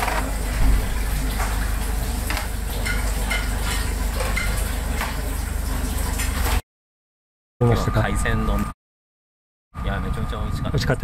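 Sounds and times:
dishes and utensils clinking: 0:02.3 - 0:04.6.

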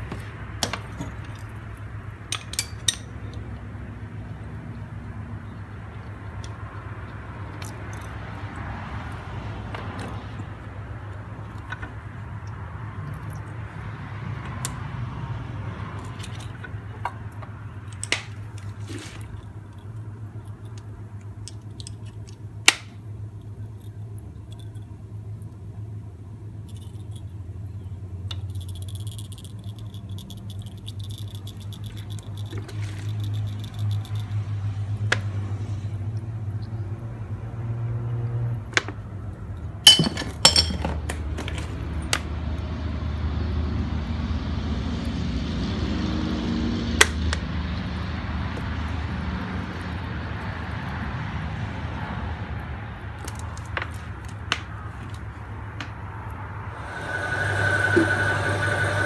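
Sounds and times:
metal tool clinks and rattles: 0:00.6 - 0:03.4, 0:39.8 - 0:41.7.

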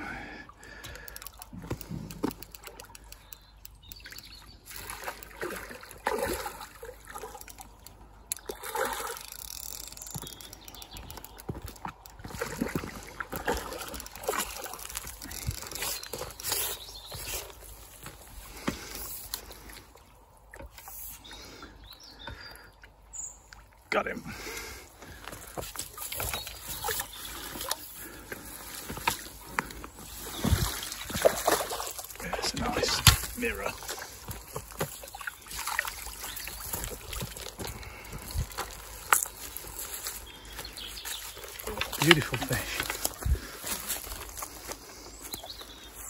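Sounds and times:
fish thrashing and splashing water: 0:04.6 - 0:17.6, 0:25.4 - 0:40.2.

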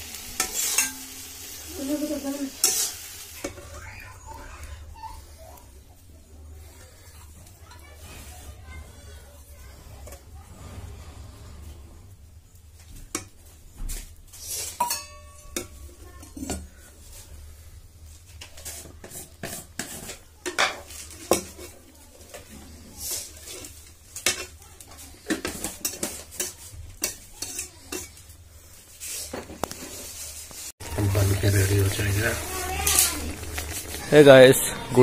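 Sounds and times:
metal spatula scraping a pan: 0:00.0 - 0:05.4, 0:07.9 - 0:12.3, 0:14.0 - 0:35.0
faint sizzle of curry: 0:00.0 - 0:35.0.

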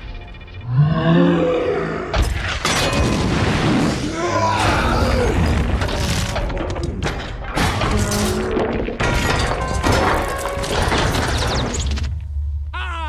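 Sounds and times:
film music score: 0:00.0 - 0:08.9
heavy crashes of shattering stone: 0:05.3 - 0:11.8.

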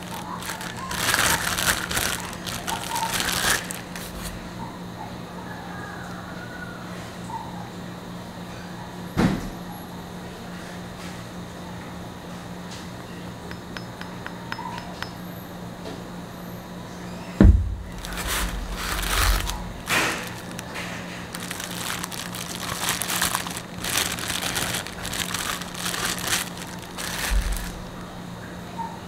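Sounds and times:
plastic wrap crinkling: 0:00.0 - 0:04.4, 0:17.8 - 0:28.1
low steady hum: 0:11.5 - 0:29.0
dull thump: 0:17.4 - 0:17.9.

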